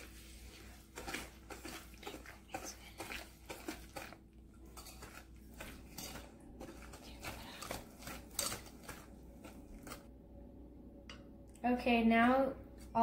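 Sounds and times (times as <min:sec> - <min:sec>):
whisk scraping a metal bowl: 0:00.0 - 0:10.1.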